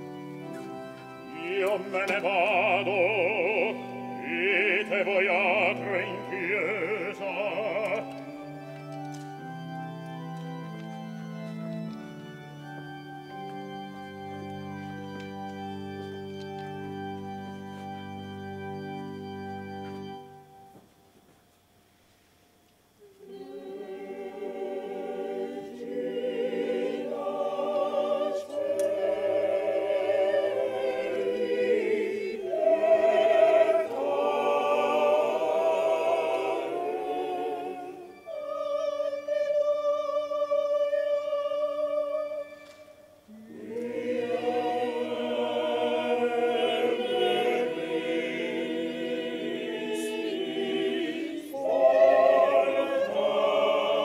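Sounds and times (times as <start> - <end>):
opera chorus singing: 0.0 - 8.5, 23.1 - 54.0.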